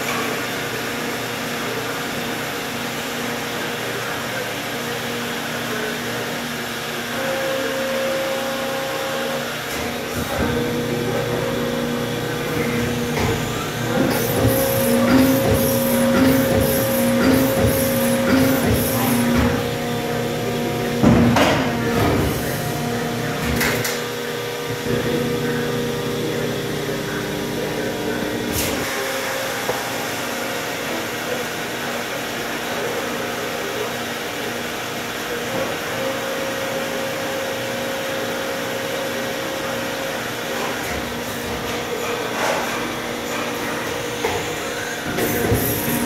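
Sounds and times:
machinery drone and hum: 7.2s - 28.9s.

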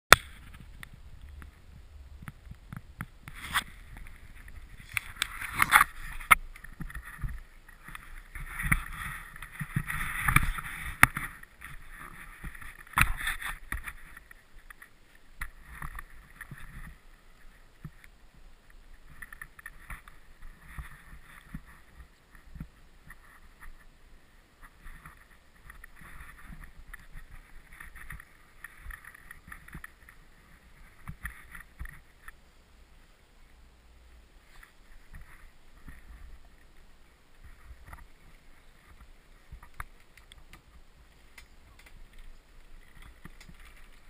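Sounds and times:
low wind rumble: 0.2s - 12.9s.

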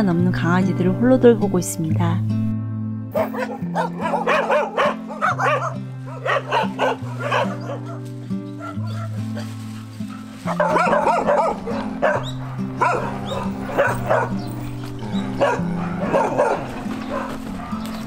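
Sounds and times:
music with held low notes: 0.0s - 18.0s
dogs barking and yelping: 3.1s - 18.0s.

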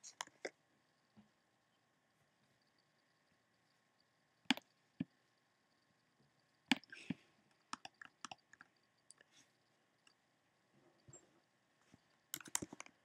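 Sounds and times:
computer mouse clicks: 6.7s - 9.2s, 12.3s - 13.0s.

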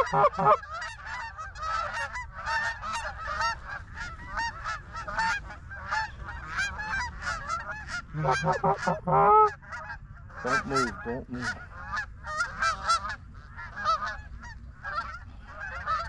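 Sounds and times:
geese honking: 0.0s - 16.0s.

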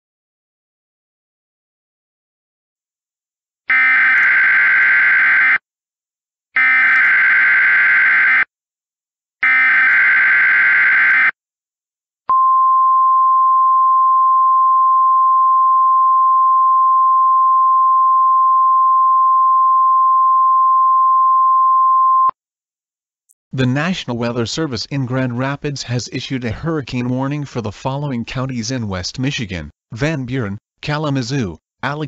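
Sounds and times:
steady warning alarm tone: 3.7s - 5.6s, 6.6s - 8.5s, 9.4s - 11.4s.

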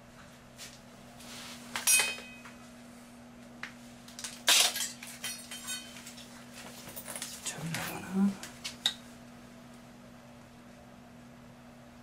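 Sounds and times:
metal tools clinking on tiled floor: 1.8s - 2.5s, 4.5s - 6.3s, 6.9s - 7.6s.

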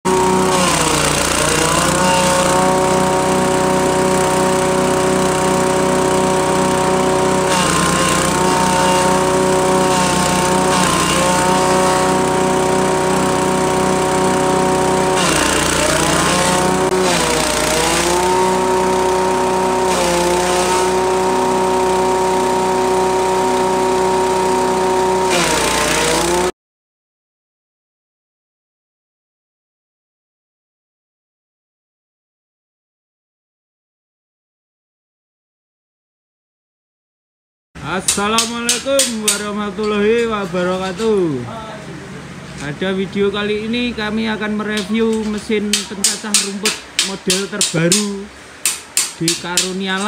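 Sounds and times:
grass chopper engine running: 0.0s - 26.6s, 37.8s - 50.0s
blades shredding grass: 0.1s - 26.5s.

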